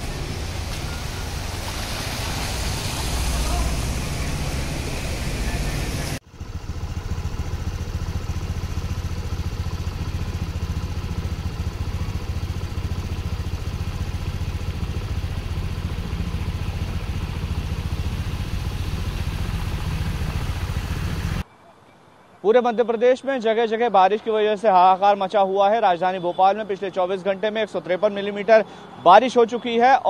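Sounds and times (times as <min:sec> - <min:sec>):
vehicle engine idling: 0:00.0 - 0:21.4.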